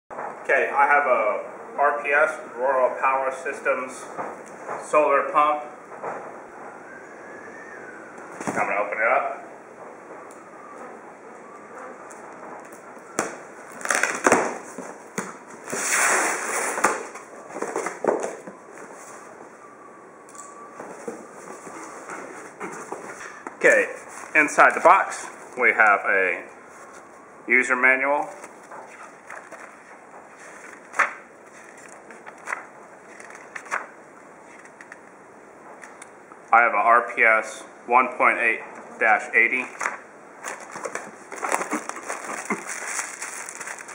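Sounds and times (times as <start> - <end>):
cardboard flaps pulled apart: 13.2 - 18.4
paper pages rustling: 20.9 - 25.6, 28.3 - 35.0, 39.7 - 43.9.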